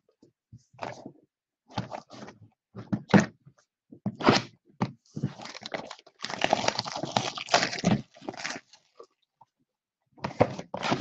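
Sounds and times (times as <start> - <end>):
plastic wrap crinkling: 5.3 - 9.0.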